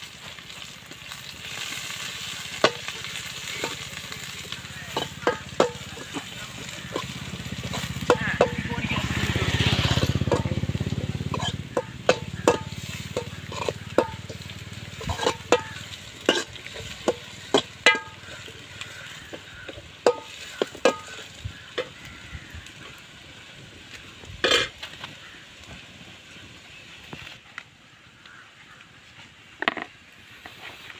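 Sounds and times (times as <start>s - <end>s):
light sizzle: 0.0s - 30.9s
spoon scraping metal pan: 11.2s - 22.0s, 24.4s - 24.8s.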